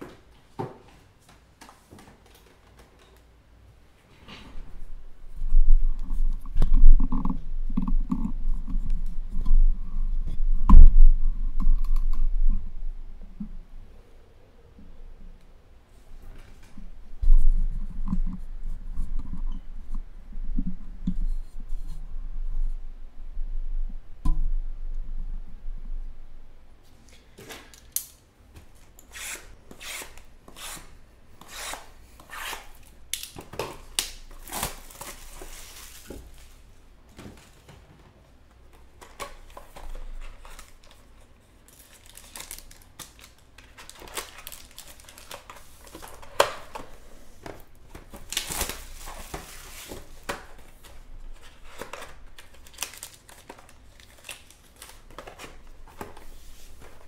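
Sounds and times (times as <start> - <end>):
shrink wrap crinkling and tearing: 31.7 - 36.6, 39.0 - 57.0
knife slitting plastic wrap: 48.3 - 50.1.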